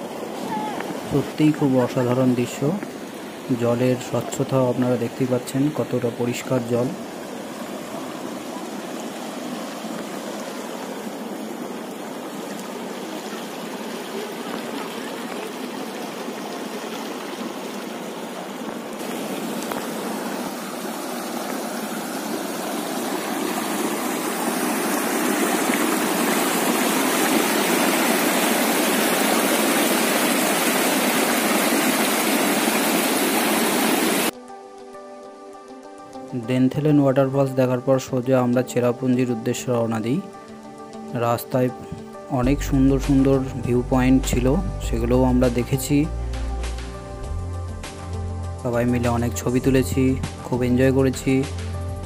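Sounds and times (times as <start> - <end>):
stream water rushing over rock: 0.0 - 34.3.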